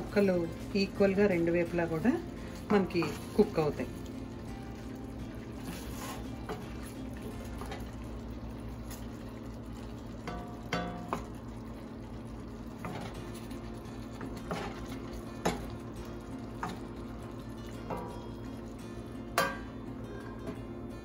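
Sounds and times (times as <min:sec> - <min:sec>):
chicken sizzling: 0:00.0 - 0:20.9
spatula scraping a pan: 0:05.5 - 0:06.9.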